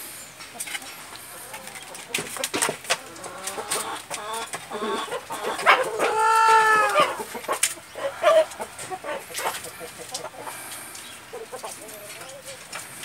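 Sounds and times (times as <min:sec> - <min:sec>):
rooster crowing: 0:05.9 - 0:07.2, 0:08.0 - 0:09.2.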